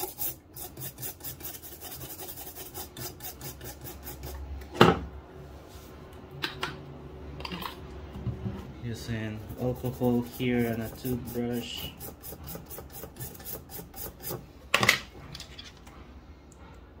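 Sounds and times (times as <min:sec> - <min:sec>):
toothbrush scrubbing circuit board: 0:00.0 - 0:04.4, 0:09.4 - 0:14.4.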